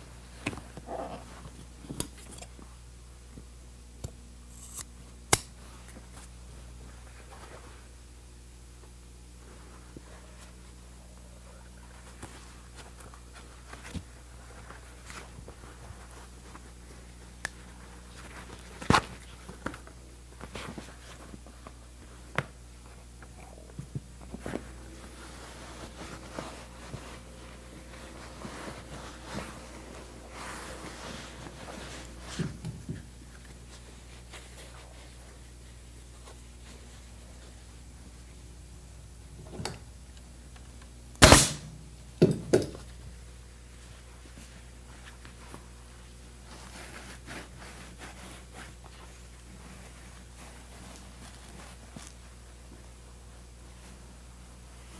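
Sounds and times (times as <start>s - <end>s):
steady low hum: 0.0s - 54.9s
leather cover rustling and rubbing: 9.5s - 37.6s, 43.8s - 54.9s.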